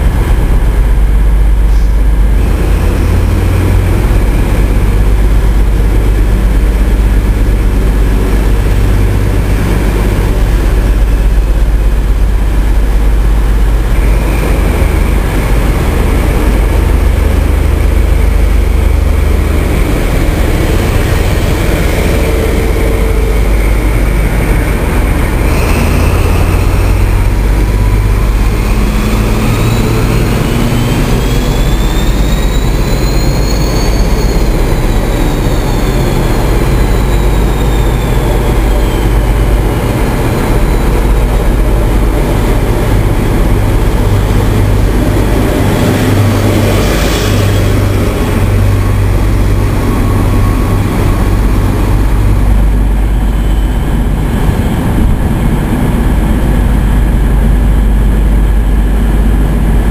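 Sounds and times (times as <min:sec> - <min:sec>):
rising engine whine: 0:00.0 - 0:59.9
train diesel engines running: 0:00.0 - 0:59.9.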